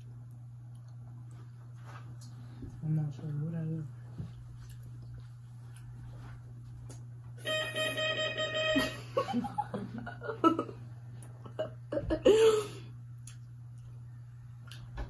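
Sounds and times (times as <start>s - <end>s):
steady held tone: 7.4s - 9.6s
girl giggling and laughing: 8.8s - 10.8s, 11.4s - 12.8s.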